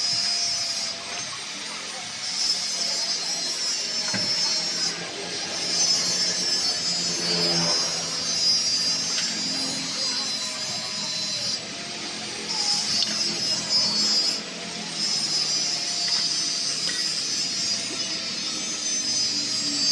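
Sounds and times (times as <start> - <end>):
spanner metal clicks and scraping: 12.5 - 19.9.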